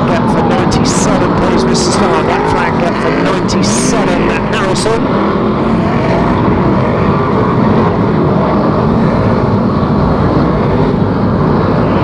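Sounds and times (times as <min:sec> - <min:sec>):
race car engines droning: 0:00.0 - 0:12.0.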